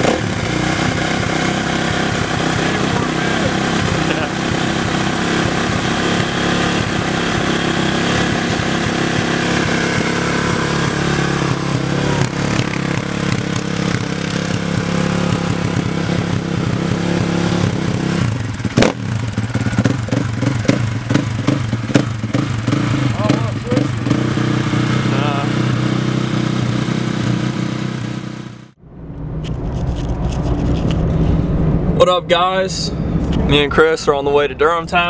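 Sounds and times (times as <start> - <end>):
short throttle revs: 0.0 - 28.7
motorcycle engine idling: 0.0 - 28.8
sharp knock: 18.7 - 19.0, 19.8 - 22.5.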